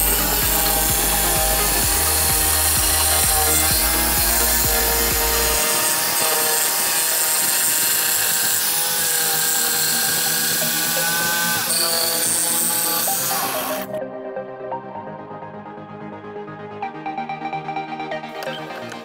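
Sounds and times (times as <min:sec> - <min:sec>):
electric jigsaw sawing plywood: 0:00.0 - 0:14.0.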